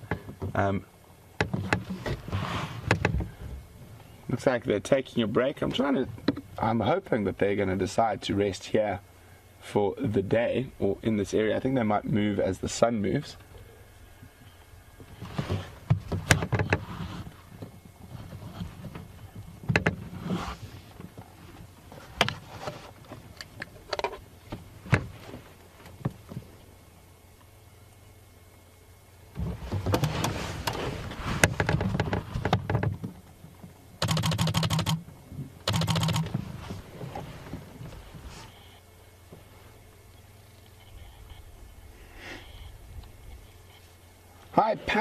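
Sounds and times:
short buzzing bursts: 34.0 - 35.0, 35.6 - 36.3.

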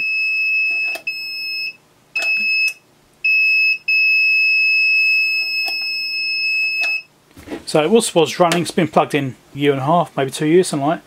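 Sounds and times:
alarm buzzer beeping: 0.0 - 7.1.

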